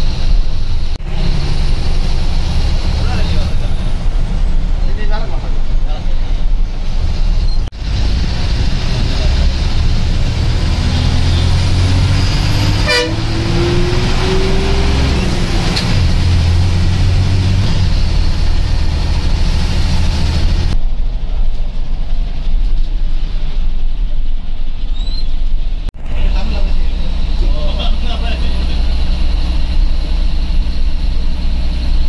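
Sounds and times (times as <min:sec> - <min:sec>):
bus engine running: 0:00.0 - 0:32.0
road noise: 0:00.0 - 0:32.0
horn tooting: 0:12.6 - 0:14.6.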